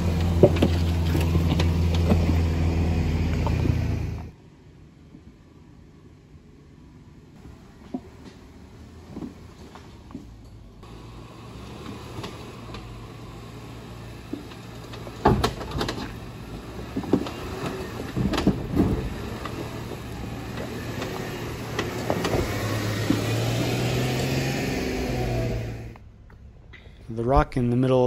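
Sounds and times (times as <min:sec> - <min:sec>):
clunks and knocks on rocks: 0:00.0 - 0:02.4, 0:16.8 - 0:19.6
vehicle engine running low: 0:00.0 - 0:04.4, 0:07.4 - 0:27.0.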